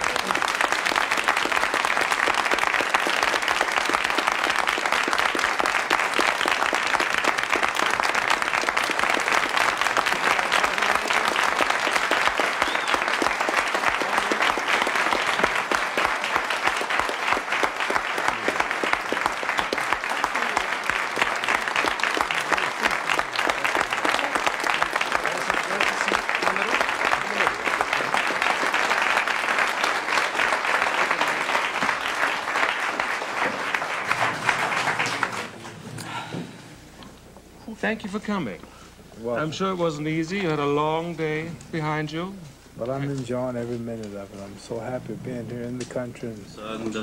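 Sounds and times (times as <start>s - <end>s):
audience applauding: 0.0s - 36.4s.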